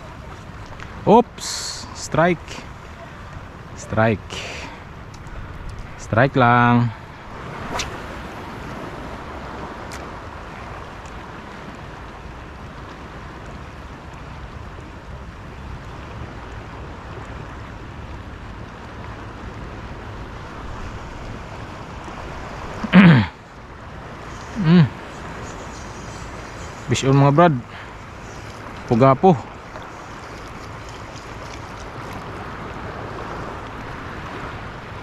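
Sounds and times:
sea surf washing: 0.0 - 35.0
wind on microphone: 4.7 - 14.0.

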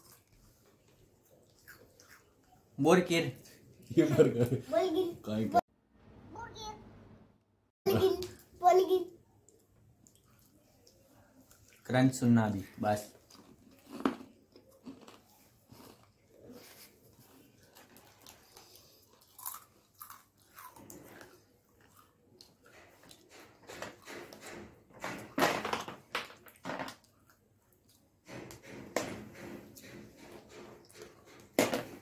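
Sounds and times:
chewing and crunching: 0.0 - 2.8, 12.6 - 23.3.

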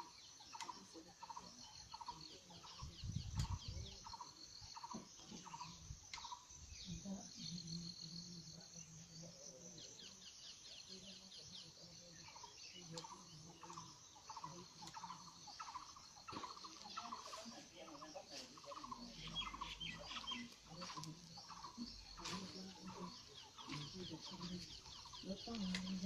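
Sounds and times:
birds calling: 9.5 - 26.0.

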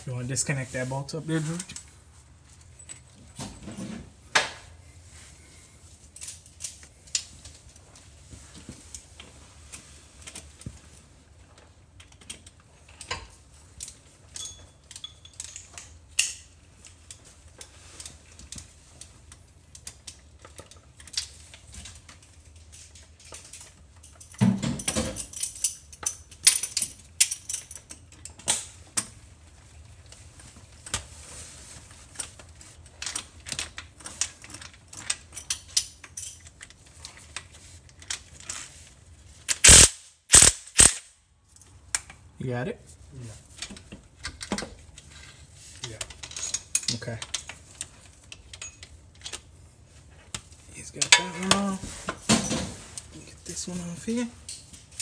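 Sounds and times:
hand tools clinking on metal bolts: 14.3 - 16.5, 23.0 - 28.4.

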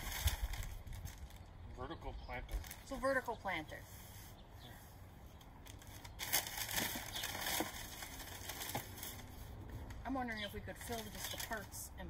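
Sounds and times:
packing paper crumpling: 0.0 - 1.5, 5.6 - 9.5, 10.8 - 11.8.

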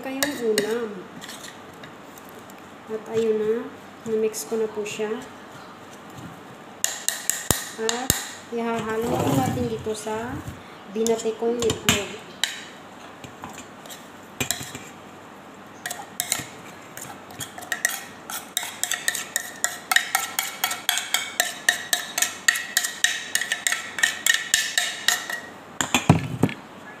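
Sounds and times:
spoon scraping a ceramic plate: 15.8 - 25.5.

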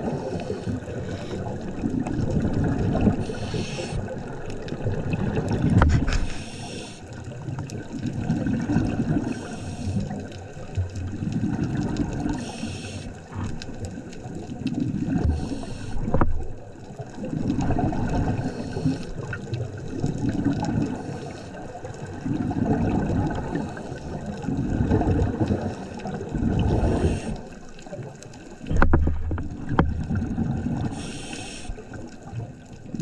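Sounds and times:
regulator breathing hiss: 3.2 - 4.1, 6.2 - 7.1, 9.3 - 10.1, 12.4 - 13.2, 15.3 - 16.1, 26.8 - 27.5, 30.9 - 31.9
rumbling exhaust bubbles: 22.0 - 27.6, 28.6 - 31.1.

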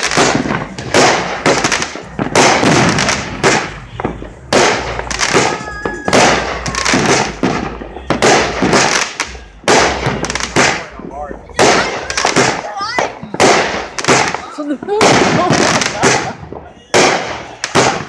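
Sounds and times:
fireworks bangs and crackle: 0.0 - 18.0.

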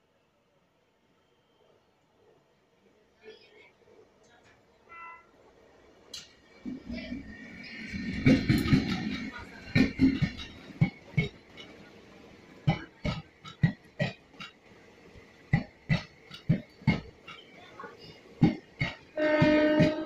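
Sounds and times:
train horn: 4.9 - 5.4, 19.1 - 20.0
train wheels clacking over rail joints: 6.1 - 20.0.

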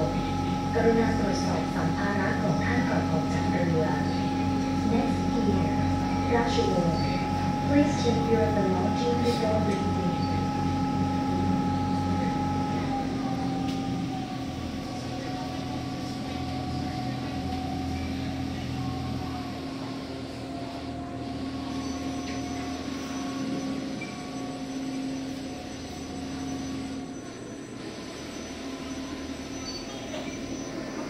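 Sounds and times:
boat engine humming: 0.0 - 31.0
engine whine: 0.0 - 31.0.

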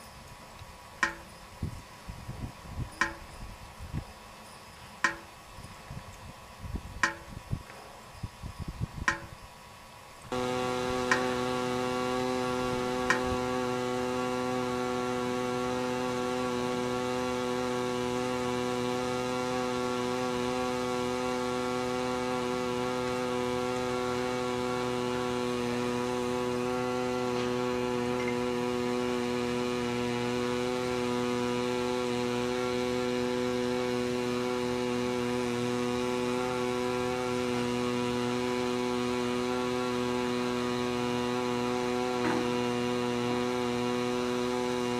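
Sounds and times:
electrical mains buzz: 0.0 - 44.9
click: 0.6 - 1.2, 9.1 - 9.3.

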